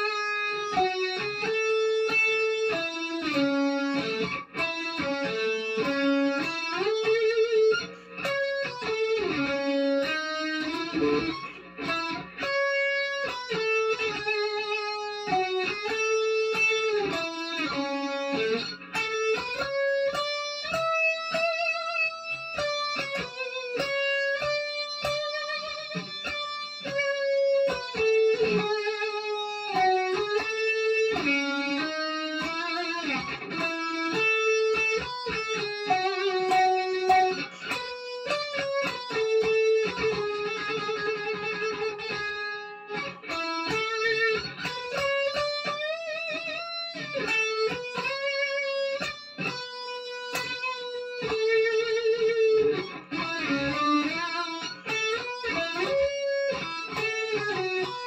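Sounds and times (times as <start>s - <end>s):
electric guitar slow melody: 0.0s - 58.0s.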